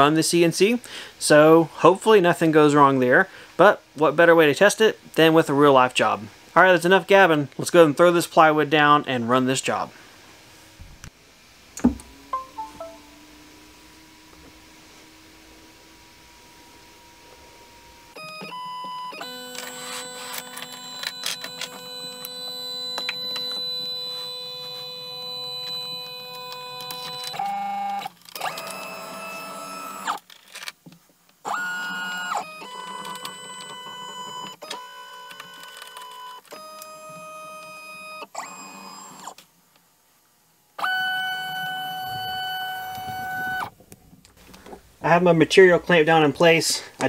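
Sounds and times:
stepper motors whining: 11.8s - 30.3s, 40.8s - 43.7s.

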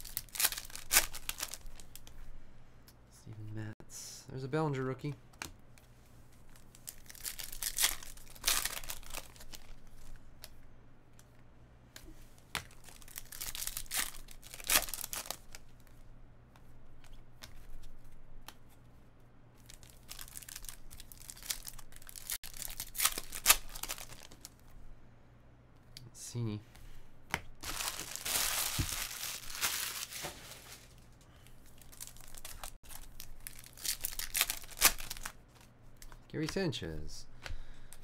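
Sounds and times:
card pack wrapper tearing and crinkling: 0.0s - 2.1s, 6.6s - 9.8s, 12.7s - 15.6s, 19.6s - 24.5s, 27.6s - 30.9s, 31.6s - 35.4s.

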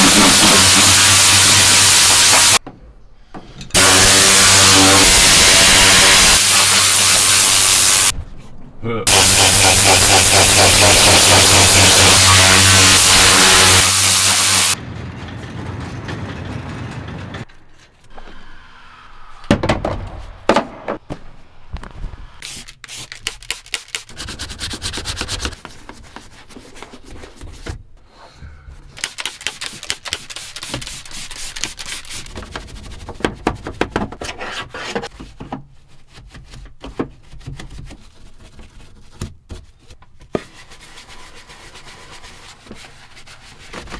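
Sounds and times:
compressed air blow gun hissing: 0.0s - 2.6s, 3.8s - 8.1s, 9.1s - 14.8s
brush scrubbing plastic surfaces: 29.0s - 33.8s.

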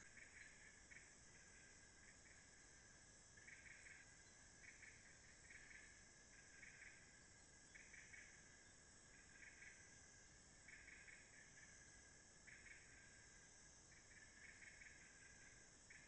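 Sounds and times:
cricket-like pulsed trills: 0.0s - 16.0s
insects buzzing: 0.0s - 16.0s.

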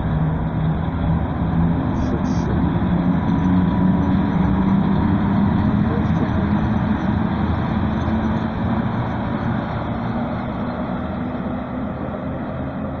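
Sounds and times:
locomotives rumbling past: 0.0s - 13.0s.

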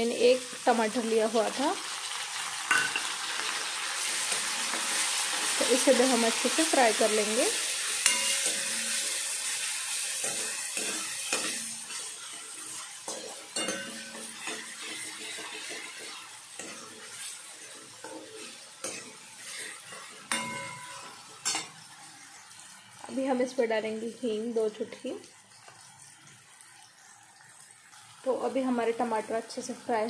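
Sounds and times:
vegetables sizzling in oil: 0.0s - 30.0s
metal ladle scraping pan: 8.0s - 21.8s.

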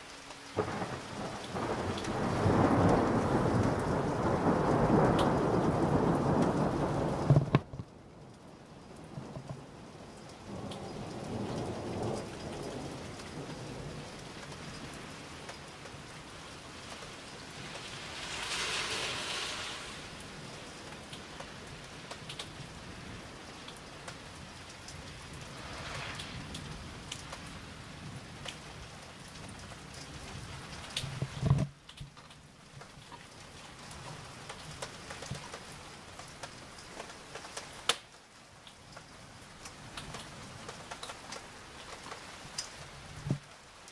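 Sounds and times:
steady rain falling: 0.0s - 43.9s
distant thunder rumble: 0.6s - 8.2s, 10.5s - 21.4s, 25.0s - 28.4s
hiss: 16.8s - 20.8s, 25.4s - 27.0s.

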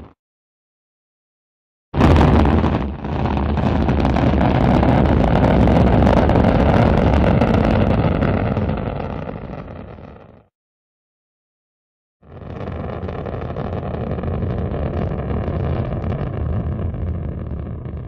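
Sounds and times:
rocket launch rumble: 2.0s - 10.5s, 12.2s - 18.0s.

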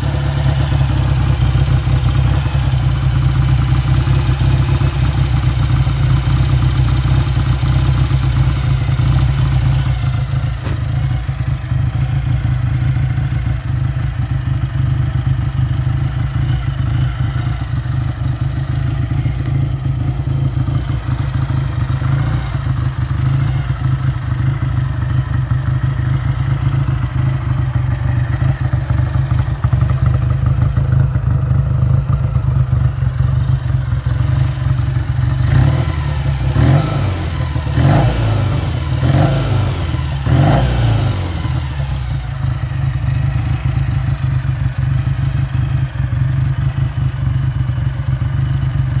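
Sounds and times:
motorcycle engine idling and revving: 0.0s - 49.0s.

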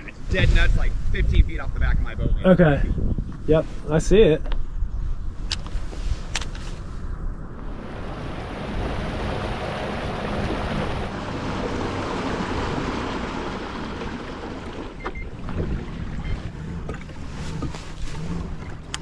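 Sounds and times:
wind buffeting microphone: 0.0s - 19.0s
water splashing along hull: 7.6s - 19.0s.

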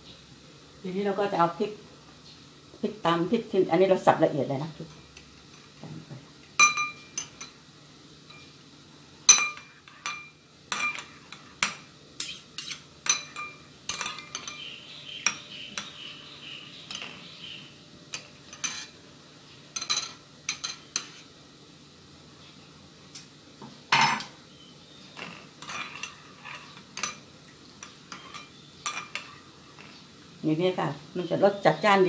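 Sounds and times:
spoon clinking against glass bowl: 6.6s - 7.6s, 9.3s - 16.0s, 25.6s - 27.2s, 27.8s - 29.4s.

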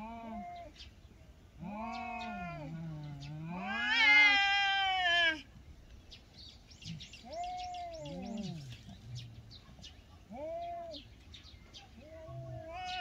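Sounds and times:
cats yowling: 0.0s - 0.8s, 1.6s - 5.5s, 7.2s - 8.7s, 10.3s - 11.1s, 12.0s - 13.0s
birds chirping: 0.0s - 4.4s, 5.6s - 13.0s.

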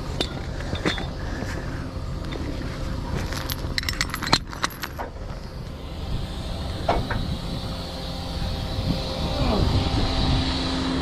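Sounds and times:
metal chain clinking on asphalt: 0.0s - 1.6s, 2.2s - 5.7s
truck engine running: 0.0s - 11.0s.

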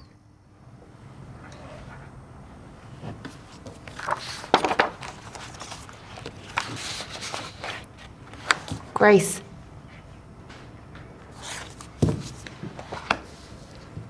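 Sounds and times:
paper rustling: 3.3s - 8.9s, 11.3s - 13.9s.

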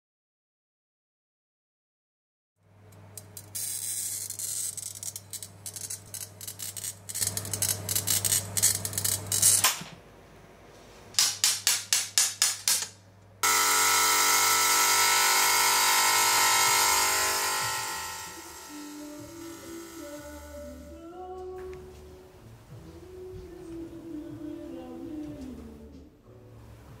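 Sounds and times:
glass grinder motor: 3.4s - 9.6s, 13.4s - 21.0s.

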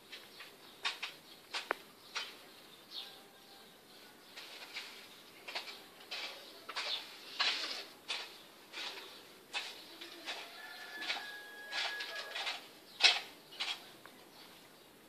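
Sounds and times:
plastic strips rustling and scraping: 4.3s - 13.9s.

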